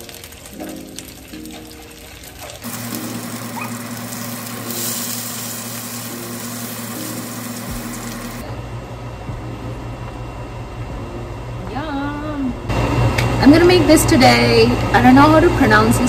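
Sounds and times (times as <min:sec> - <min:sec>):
fish sizzling in frying pan: 0:00.0 - 0:08.4
steady low hum: 0:02.7 - 0:16.0.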